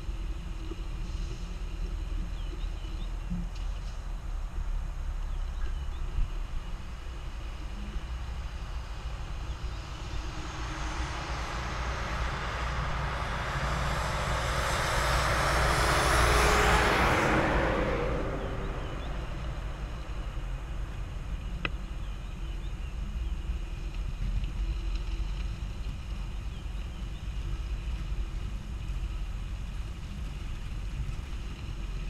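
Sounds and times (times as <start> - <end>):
vehicle passing by: 7.2 - 21.6.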